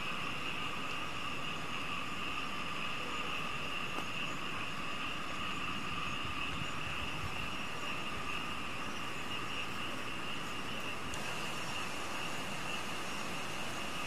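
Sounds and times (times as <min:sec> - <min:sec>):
night insects buzzing: 0:00.0 - 0:14.0.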